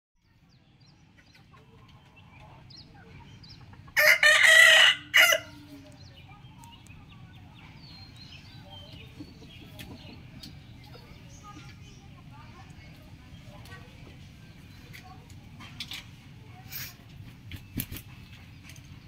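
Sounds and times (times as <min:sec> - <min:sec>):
rooster crowing: 0:04.0 - 0:05.6.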